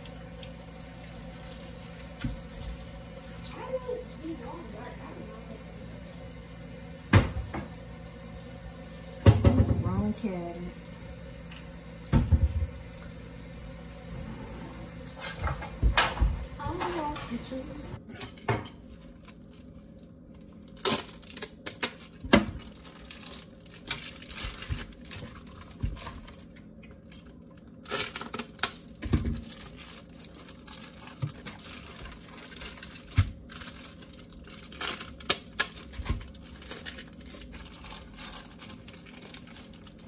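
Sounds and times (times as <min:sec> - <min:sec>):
crinkling: 0:19.0 - 0:40.0.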